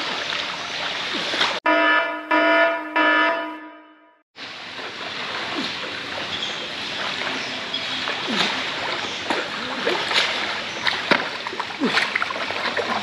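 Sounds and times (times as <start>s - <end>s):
pool water splashing: 0.0s - 1.7s, 4.4s - 13.0s.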